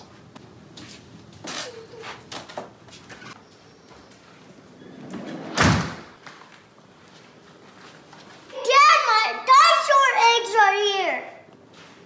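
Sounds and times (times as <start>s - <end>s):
loud thump and rush: 5.5s - 6.2s.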